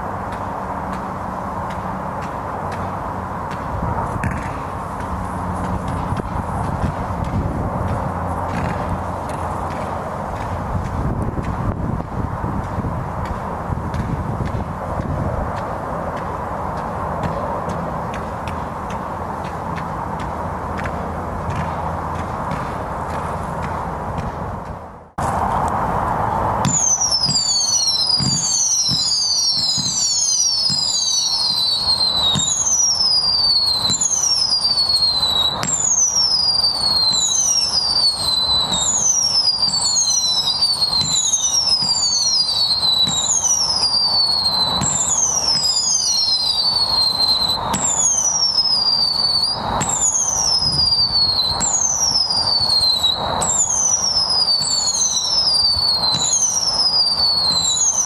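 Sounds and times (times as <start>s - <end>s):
whistling firework shots: 0.0s - 25.4s, 26.6s - 58.0s
firework launch pops and thuds: 3.5s - 15.7s, 18.1s - 25.4s, 26.6s - 30.0s, 30.6s - 32.6s, 33.6s - 35.9s, 40.8s - 44.0s, 44.6s - 45.9s, 47.2s - 48.0s, 49.8s - 56.8s.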